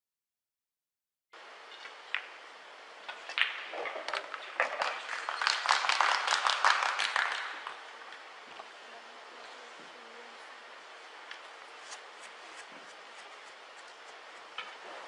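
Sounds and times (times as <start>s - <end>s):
scattered applause: 4.8s - 7.8s.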